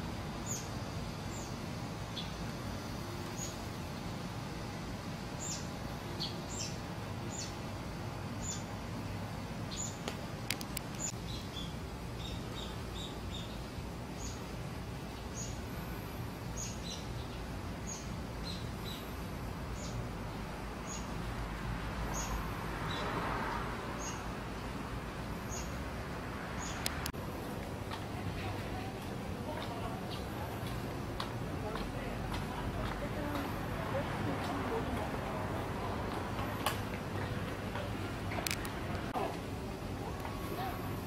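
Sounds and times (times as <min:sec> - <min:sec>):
street noise rumble: 0:00.0 - 0:41.0
small birds chirping: 0:00.4 - 0:04.2, 0:05.3 - 0:07.7, 0:08.4 - 0:08.8, 0:09.7 - 0:15.7, 0:16.4 - 0:21.2, 0:22.1 - 0:24.4, 0:25.4 - 0:25.8, 0:26.6 - 0:27.1, 0:28.8 - 0:30.8.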